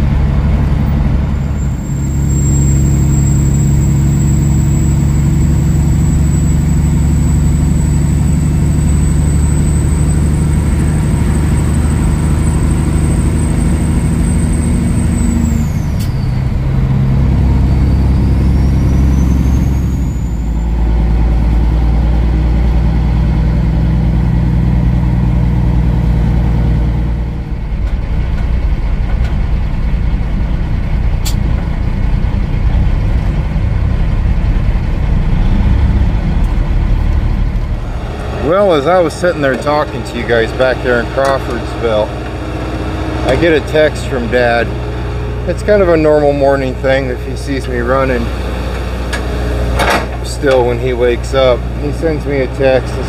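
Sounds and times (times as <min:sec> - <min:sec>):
diesel truck engine running: 0:00.0 - 0:53.0
high whine: 0:00.0 - 0:53.0
sharp click: 0:31.2 - 0:31.4.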